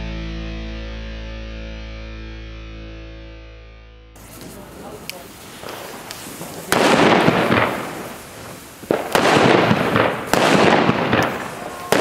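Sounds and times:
firecracker crack and fizzing rush: 4.2 - 12.0.

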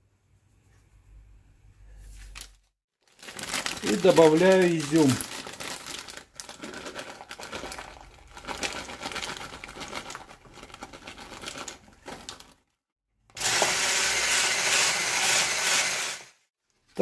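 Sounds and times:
plastic bag crinkling: 2.3 - 12.8
immersion blender running: 13.3 - 16.4.

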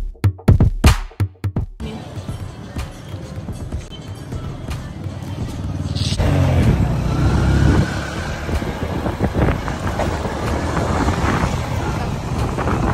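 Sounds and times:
street noise: 1.8 - 12.9
vehicle engine passing: 4.9 - 12.9.

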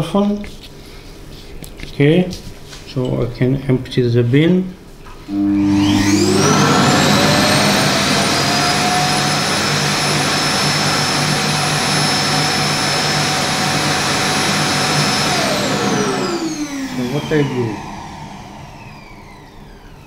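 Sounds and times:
suction motor rushing and whining: 5.3 - 20.0.

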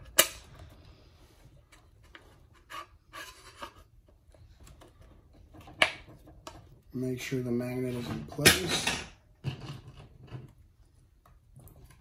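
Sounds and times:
faint rubbing and scraping: 0.5 - 8.4.

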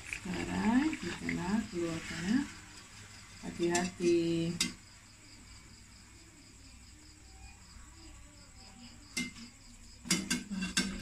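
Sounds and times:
faint steady hiss: 0.0 - 11.0.

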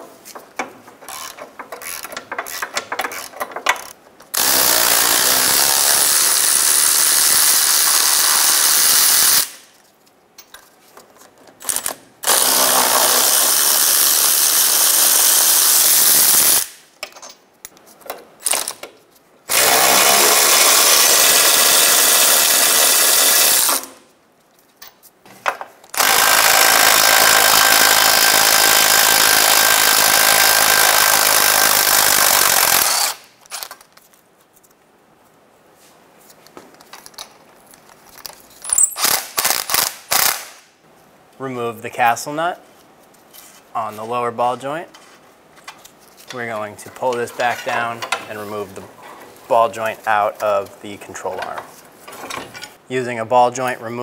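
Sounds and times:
power ratchet running: 4.4 - 9.5, 11.7 - 16.7, 19.5 - 24.0, 26.0 - 33.2.

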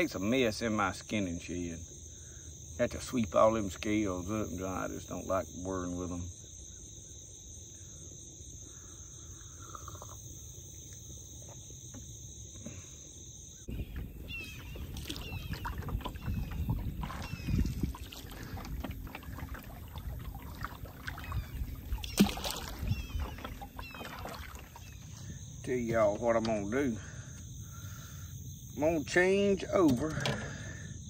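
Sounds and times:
insects droning: 0.0 - 31.0
wind buffeting microphone: 13.7 - 24.2
water slapping against canoe hull: 13.7 - 26.8.

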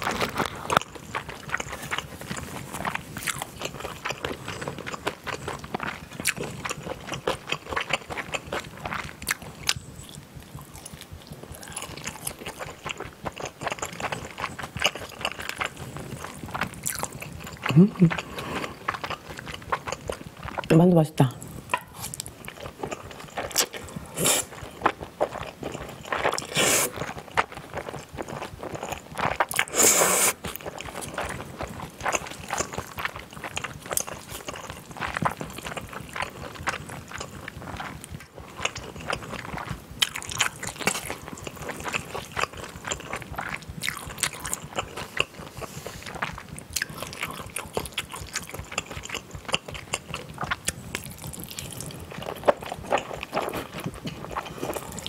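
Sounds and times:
wet chewing: 0.0 - 20.7, 21.6 - 55.0
person slurping noodles: 24.0 - 24.6, 26.2 - 27.2, 29.6 - 30.4.

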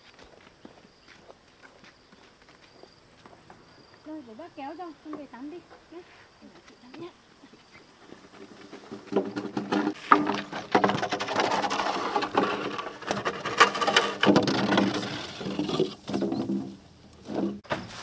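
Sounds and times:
bamboo poles scraping: 7.6 - 18.0
hollow wooden knocks: 8.3 - 17.8.

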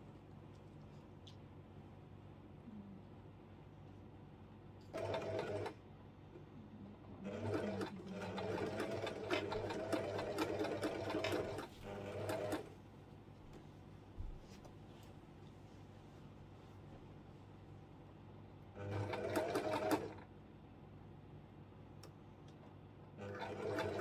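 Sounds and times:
sewing machine stitching: 4.9 - 5.8, 7.2 - 12.7, 18.8 - 20.2, 23.2 - 24.0
click: 22.0 - 22.6.

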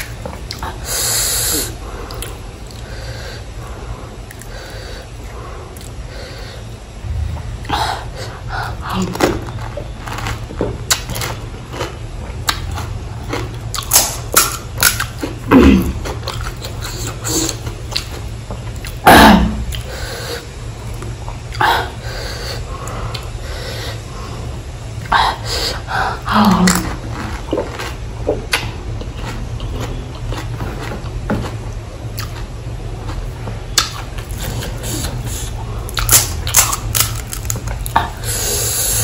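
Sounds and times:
crisp shells crunching: 35.9 - 38.0.

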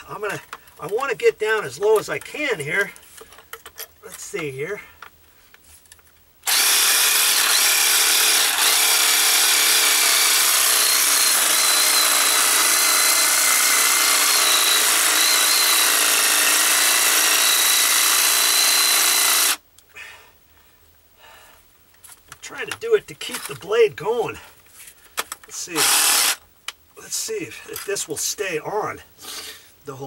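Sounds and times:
reciprocating saw cutting metal: 6.5 - 19.6, 25.6 - 26.4.

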